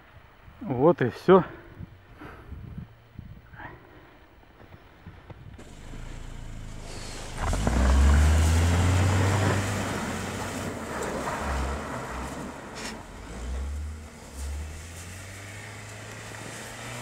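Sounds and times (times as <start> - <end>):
car engine rumbling under load: 4.4 - 17.0
tyres churning snow: 5.6 - 17.0.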